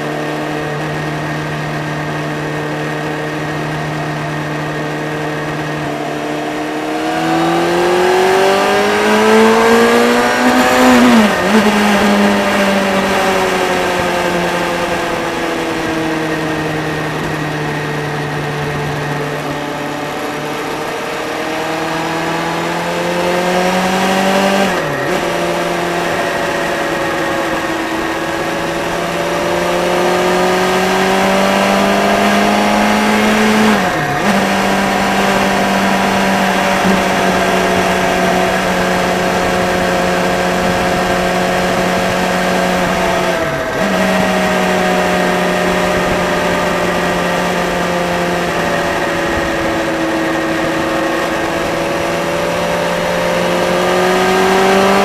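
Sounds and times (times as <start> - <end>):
wind rush on camera: 0.0 - 55.0
motorcycle engine changing gear: 0.2 - 55.0.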